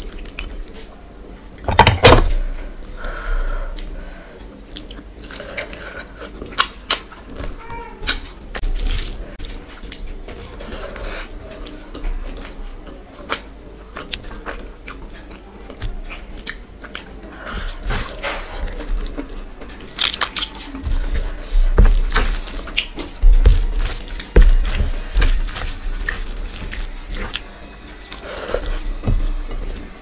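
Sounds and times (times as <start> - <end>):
hand squishing rice: 17.6 - 29.3
wet chewing and lip smacks: 18.6 - 21.0.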